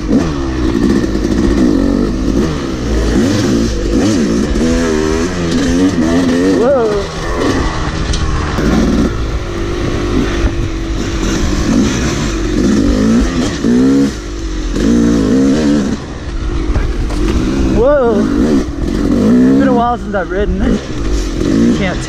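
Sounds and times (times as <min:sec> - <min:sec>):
dirt bike engine revving: 0:00.0 - 0:22.0
wind rumble on microphone: 0:04.5 - 0:13.5.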